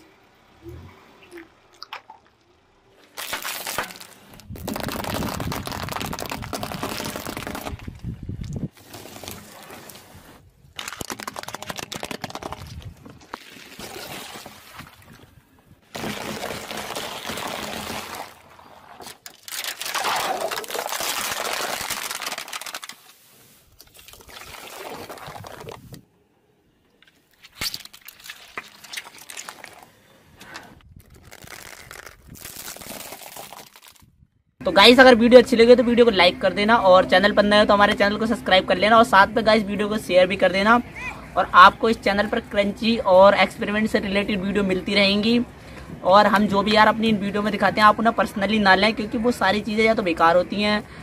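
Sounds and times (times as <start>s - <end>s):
plastic cups bursting and splashing: 1.7s - 15.1s, 15.8s - 26.0s, 27.4s - 29.9s, 31.0s - 34.1s
soft toys squished: 3.1s - 8.0s, 10.8s - 14.4s, 15.9s - 23.1s, 27.4s - 29.9s, 31.0s - 34.1s.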